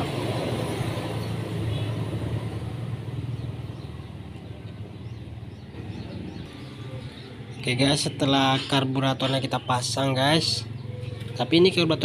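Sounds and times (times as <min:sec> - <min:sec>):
low engine hum: 0:00.0 - 0:08.6.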